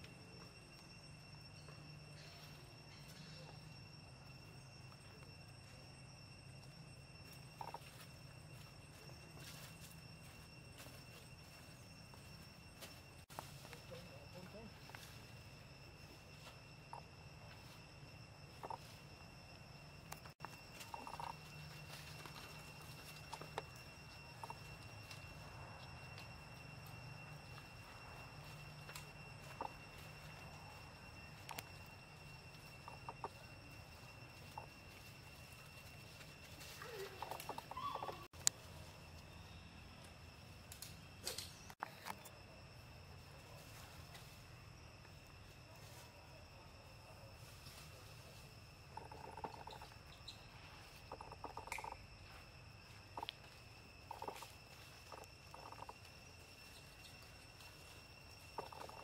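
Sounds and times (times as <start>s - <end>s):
faint high whine: 0.0s - 59.0s
high-pitched insect drone: 0.0s - 59.0s
rapid pulsed animal calls: 0.9s - 6.2s, 6.8s - 12.9s, 13.9s - 41.9s, 45.7s - 59.0s
animal calls: 36.6s - 38.3s.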